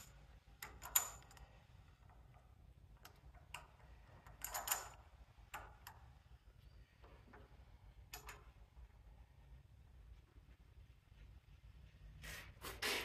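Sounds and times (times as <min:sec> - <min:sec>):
metallic clicks of tools: 0:00.0 - 0:06.2, 0:07.3 - 0:08.6.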